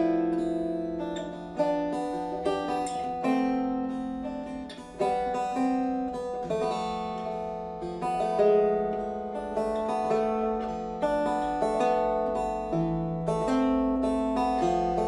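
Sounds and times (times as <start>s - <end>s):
plucked lute melody: 0.0s - 15.0s.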